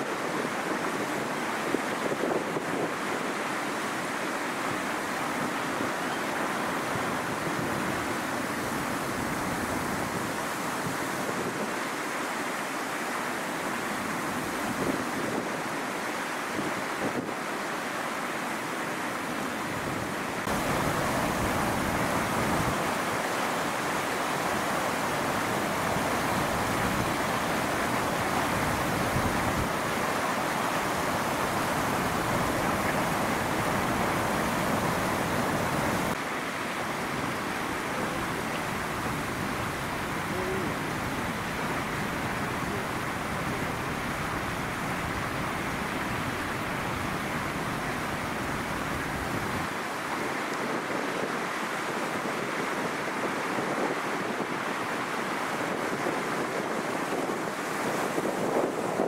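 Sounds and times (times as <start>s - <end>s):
strong wind blowing: 19.6s - 36.2s, 52.1s - 59.0s.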